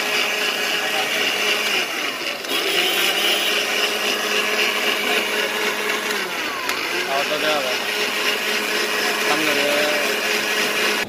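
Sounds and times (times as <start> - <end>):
blender motor whirring: 0.0 - 11.0.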